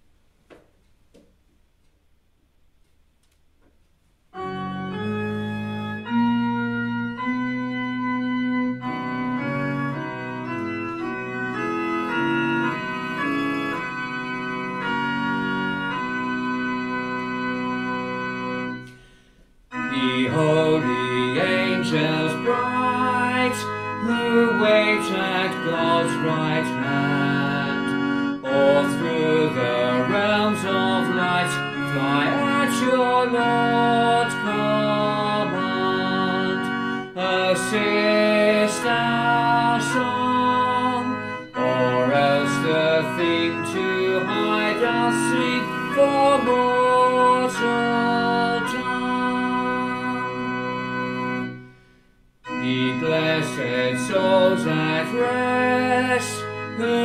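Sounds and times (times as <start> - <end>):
organ playing a hymn: 4.3 - 57.0
voices singing: 19.8 - 50.9, 52.6 - 57.0.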